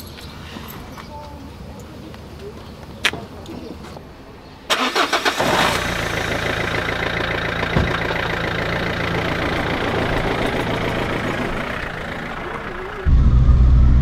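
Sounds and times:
diesel engine starter cranking: 0:04.7 - 0:13.1
diesel engine idling: 0:04.7 - 0:14.0
low thump: 0:07.7 - 0:08.1.

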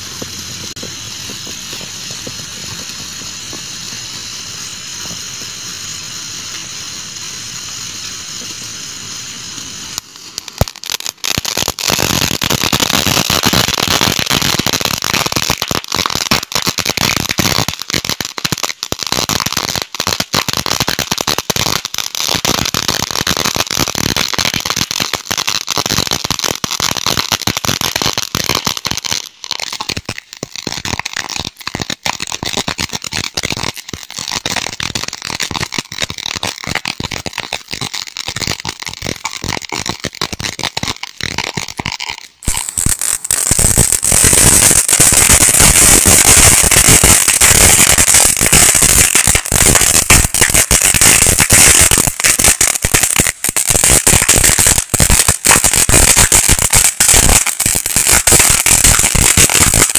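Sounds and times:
spark fountain crackling: 0:00.0 - 0:59.9
sparkler fuse fizzing: 0:00.0 - 0:59.9
firecracker pop: 0:36.4 - 0:53.5.

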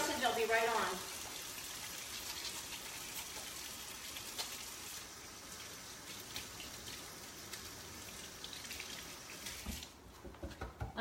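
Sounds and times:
tap running: 0:09.4 - 0:11.0.

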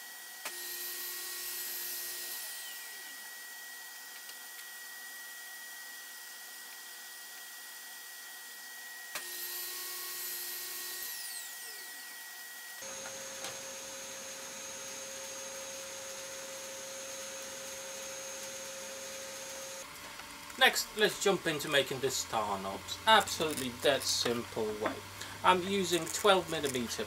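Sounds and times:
table saw whining: 0:00.0 - 0:27.0
saw blade winding down: 0:00.4 - 0:04.0, 0:09.1 - 0:19.9, 0:20.5 - 0:27.0.

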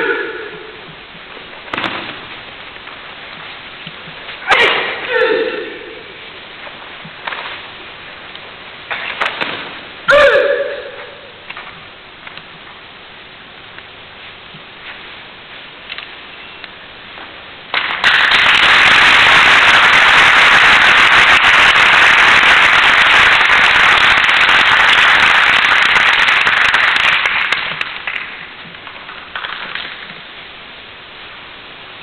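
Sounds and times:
audience applauding: 0:17.7 - 0:28.4.

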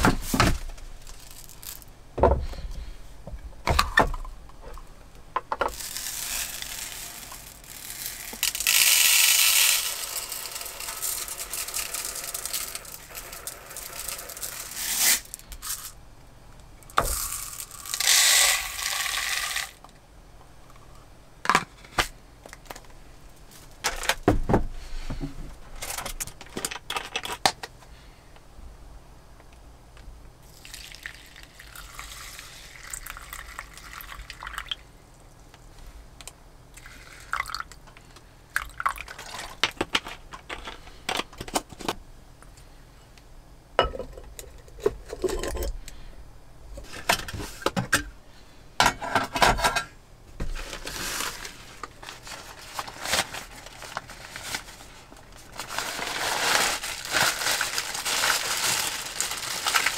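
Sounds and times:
plastic packaging crinkling: 0:00.0 - 0:01.9, 0:05.6 - 0:16.0, 0:17.0 - 0:19.8, 0:50.6 - 0:59.9
water pouring into bowl: 0:30.6 - 0:34.8.

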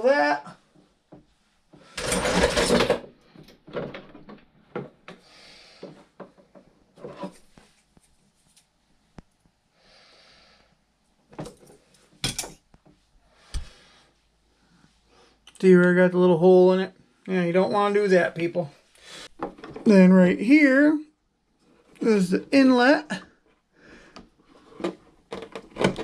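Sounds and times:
loud scraping rustle: 0:01.9 - 0:03.0.

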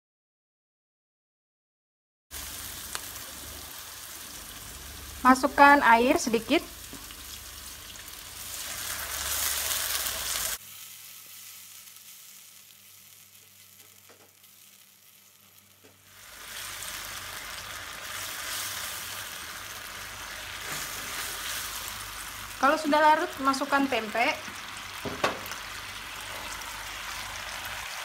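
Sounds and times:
pan sizzling: 0:02.3 - 0:28.0.

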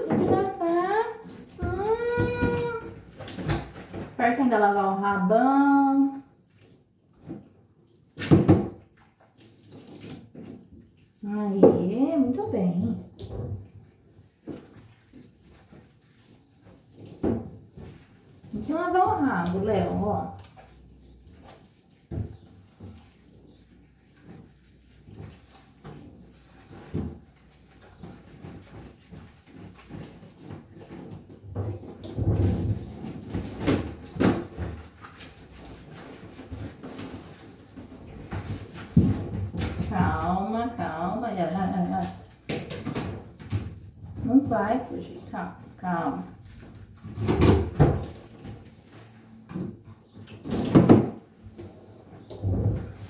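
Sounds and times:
knocks in plastic bathtub: 0:01.5 - 0:04.2, 0:08.2 - 0:08.9, 0:47.0 - 0:48.6, 0:49.5 - 0:51.3
water splashing in a tub: 0:06.2 - 0:51.5.

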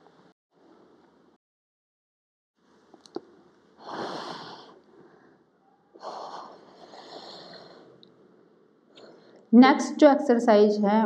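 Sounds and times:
woman breathing hard: 0:03.8 - 0:08.0.

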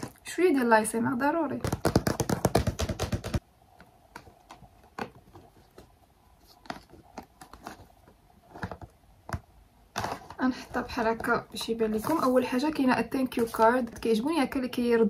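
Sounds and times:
fingernails tapping on cardboard box: 0:01.7 - 0:03.4.

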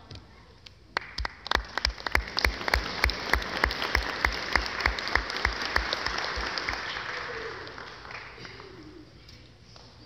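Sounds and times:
close hands clapping steadily: 0:00.6 - 0:09.0
audience applauding: 0:01.0 - 0:08.9.

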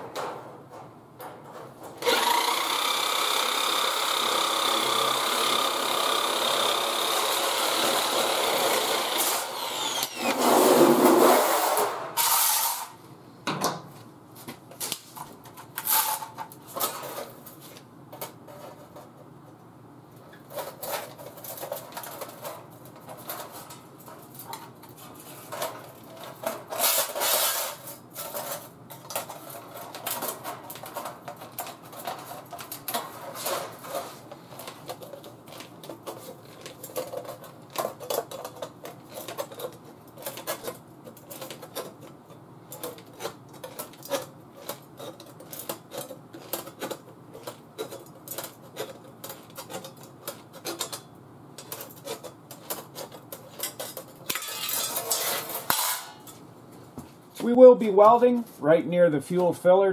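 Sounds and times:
sheet metal clinking: 0:50.6 - 0:56.4.

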